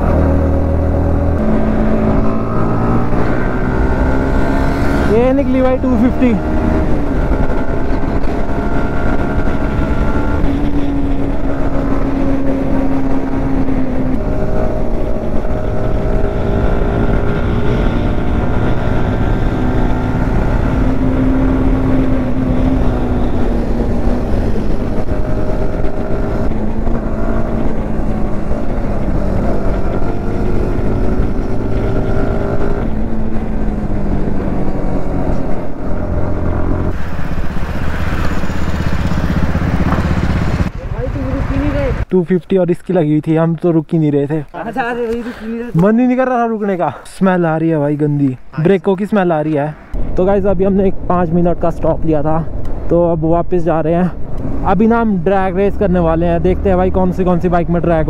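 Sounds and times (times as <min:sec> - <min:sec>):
motorcycle engine running: 0:04.7 - 0:42.0.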